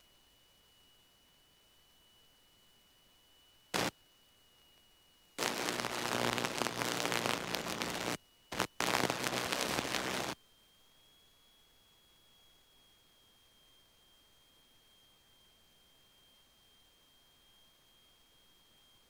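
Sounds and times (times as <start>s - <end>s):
radio static hiss: 5.4s - 10.4s.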